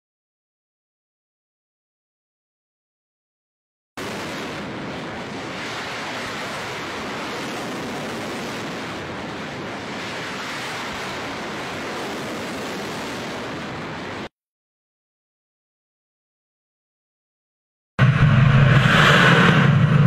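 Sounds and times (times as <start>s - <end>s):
rocket boosters roaring: 4.0s - 14.3s, 18.0s - 20.0s.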